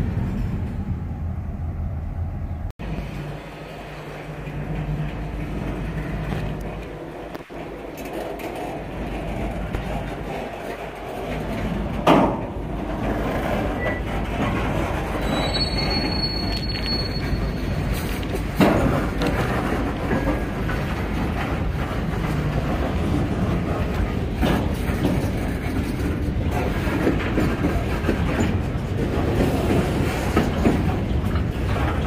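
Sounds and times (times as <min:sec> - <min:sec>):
steel wheels rumbling on rail: 0:00.0 - 0:32.0
freight car clanks: 0:04.1 - 0:32.0
wheel squeal: 0:13.0 - 0:18.6.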